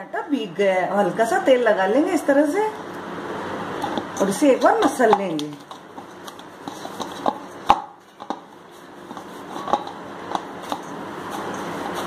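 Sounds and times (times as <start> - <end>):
hands kneading dough: 4.0 - 12.0.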